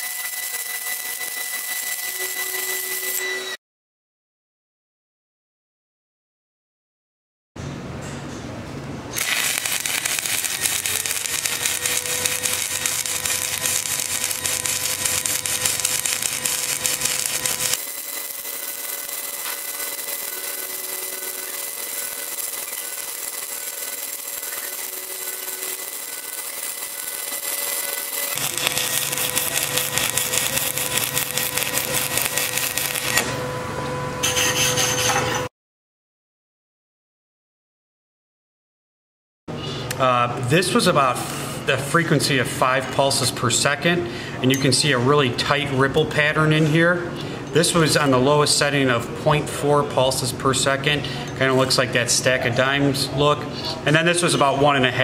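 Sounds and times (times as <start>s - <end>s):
welding arc crackling hiss: 0.0s - 3.2s, 9.2s - 33.3s.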